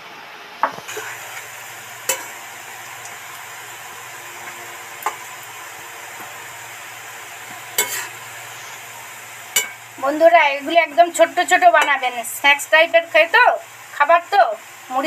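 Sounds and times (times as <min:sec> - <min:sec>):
pakoras sizzling in hot oil: 0:00.6 - 0:15.0
metal spoon clicking against pan: 0:09.6 - 0:09.8.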